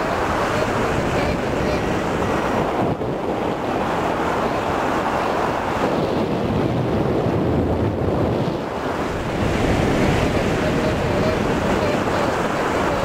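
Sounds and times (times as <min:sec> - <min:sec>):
airflow buffeting microphone: 0:00.0 - 0:13.0.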